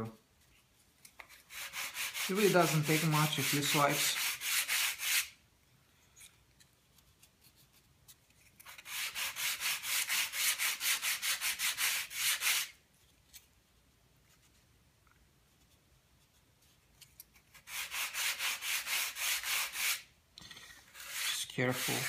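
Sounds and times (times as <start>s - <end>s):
sandpaper rubbing on wood: 1.3s - 5.4s, 8.7s - 12.8s, 17.5s - 20.1s, 20.9s - 22.0s.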